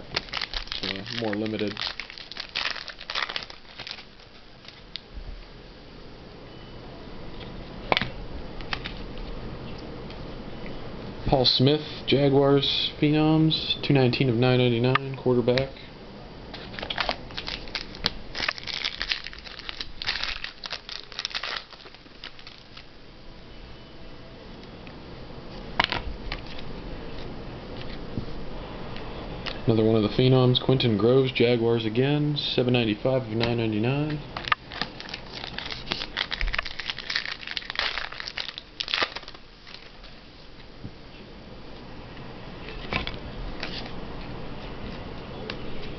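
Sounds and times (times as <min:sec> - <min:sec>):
plastic packaging crinkling: 0:00.0 - 0:05.1, 0:16.6 - 0:22.9, 0:34.4 - 0:40.2.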